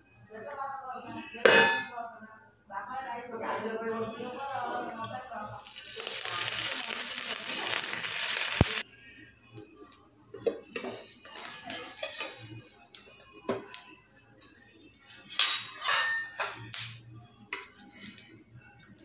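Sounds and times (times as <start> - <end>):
metal bowl clinking on frying pan: 1.5 - 2.0, 11.7 - 12.4, 15.4 - 16.6.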